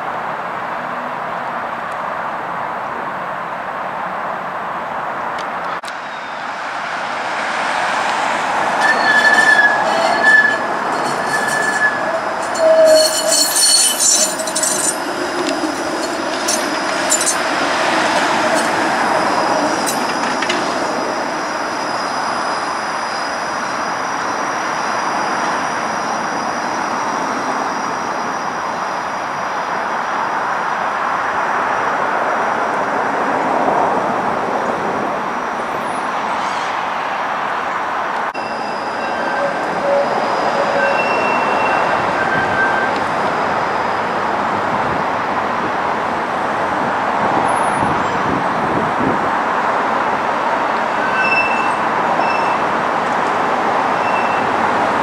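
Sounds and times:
streetcar rolling rumble: 0.0 - 55.0
streetcar wheels squealing: 7.8 - 29.2, 35.6 - 37.2, 38.4 - 45.1, 50.4 - 55.0
wheels clicking over rail joints: 8.0 - 21.1.

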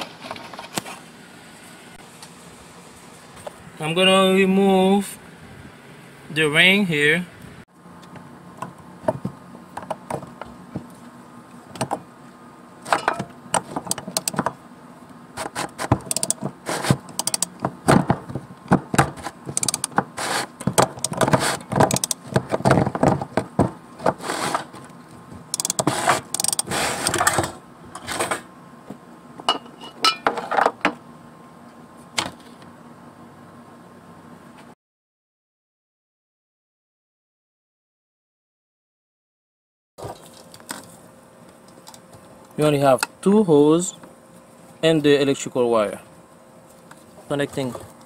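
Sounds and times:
metal tool scraping plastic ring: 25.6 - 27.3.

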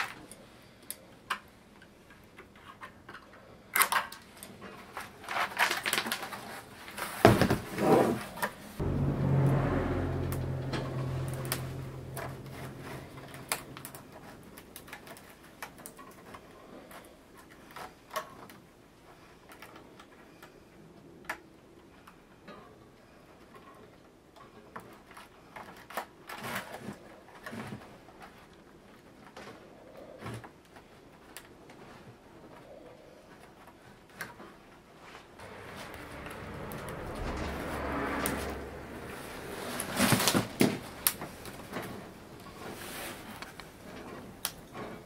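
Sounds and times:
bamboo strips clicking and crackling: 0.0 - 7.0, 43.2 - 45.0
low hum: 8.8 - 15.0, 35.4 - 45.0.

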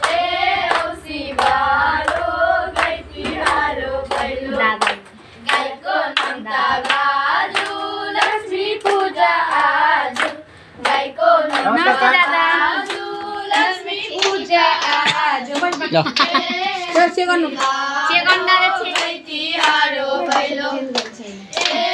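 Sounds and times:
girls singing in chorus: 0.0 - 21.9
hands clapping in time: 18.9 - 21.8.

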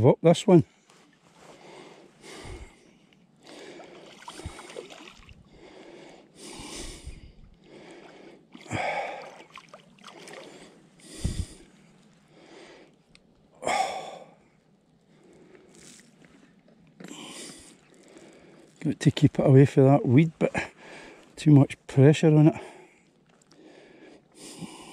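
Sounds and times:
man breathing heavily: 0.7 - 13.0, 13.6 - 14.4, 17.0 - 18.8, 20.5 - 21.4, 22.5 - 24.9.

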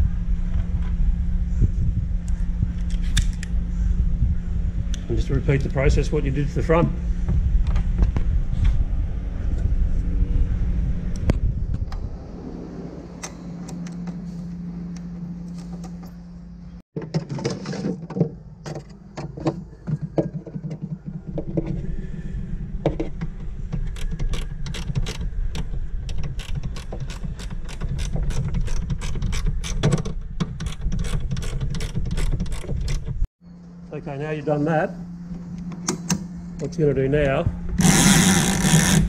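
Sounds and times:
steady low hum: 0.0 - 16.8, 18.3 - 39.0
ratchet clicking: 23.8 - 29.9, 37.8 - 39.0.

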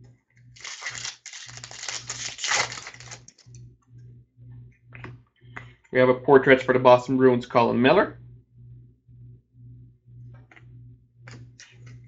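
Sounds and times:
trading cards rustling: 0.6 - 3.5.

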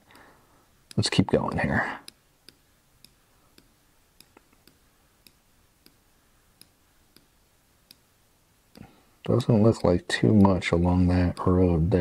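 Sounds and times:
computer mouse clicks: 2.0 - 6.0, 6.6 - 8.1.

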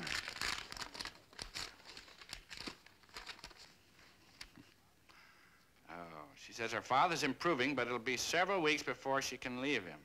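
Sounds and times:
paper crinkling and rustling: 0.0 - 4.6.

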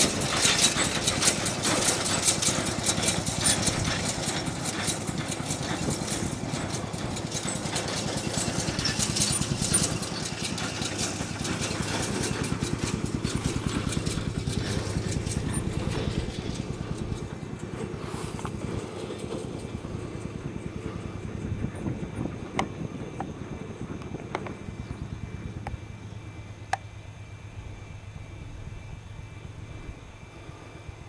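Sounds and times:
wagon rattling: 0.0 - 22.8
tractor diesel engine running: 0.0 - 31.0.

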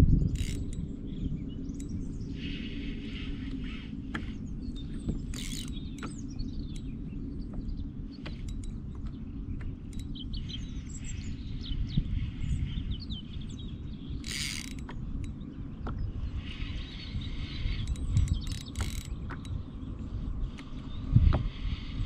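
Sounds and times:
fishing reel gears whirring: 0.0 - 2.5, 3.2 - 9.1, 9.8 - 11.4, 13.9 - 15.8, 17.2 - 19.7
low rumble of wind: 0.0 - 22.0
small birds chirping: 0.0 - 22.0.

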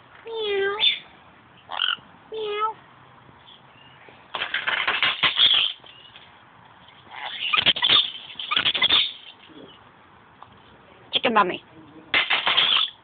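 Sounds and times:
lorikeet chattering: 1.7 - 2.0, 7.1 - 9.8.

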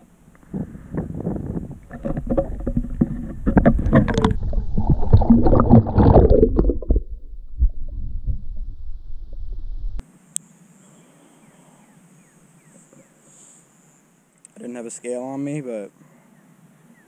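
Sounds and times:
muffled underwater rumble: 0.0 - 10.0
water splashing and sloshing: 1.4 - 9.3.

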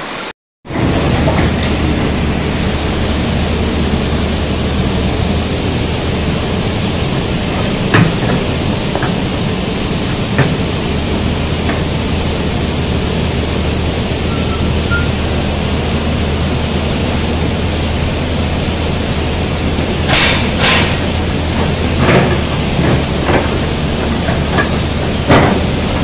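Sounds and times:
excavator diesel engines running: 0.7 - 26.0.

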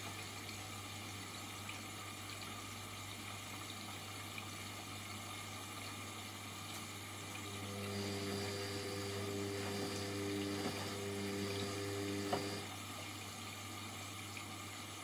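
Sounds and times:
steady low hum: 7.2 - 12.8
washing machine motor whining: 7.2 - 12.8.

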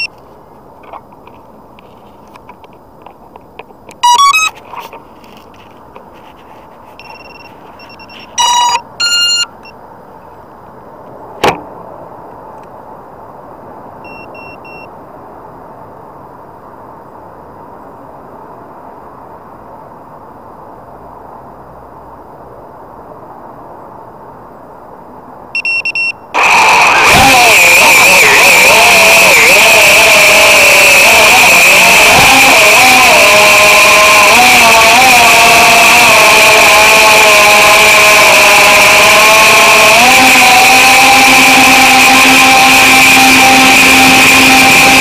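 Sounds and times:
background hiss: 0.0 - 27.1
electronic beeps and alert tones: 4.0 - 4.6, 7.0 - 9.6.

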